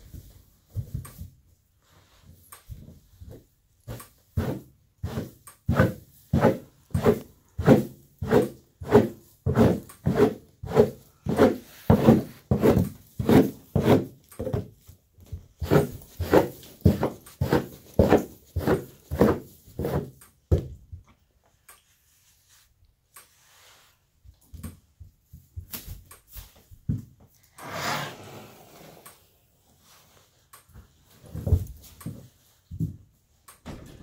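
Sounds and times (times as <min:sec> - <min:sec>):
horse rubbing against wooden boards: 0:04.4 - 0:14.7, 0:15.6 - 0:20.2, 0:27.6 - 0:29.4.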